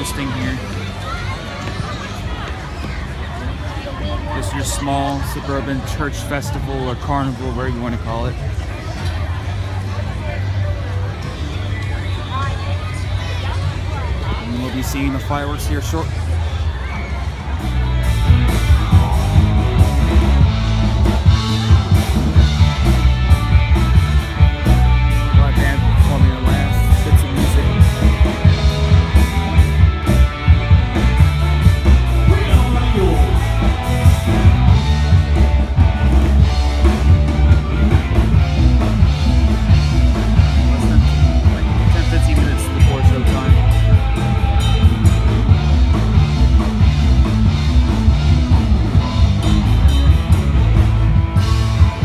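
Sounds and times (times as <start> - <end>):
loud rock music: 0.0 - 1.5, 12.5 - 52.0
drum beat: 18.0 - 52.0.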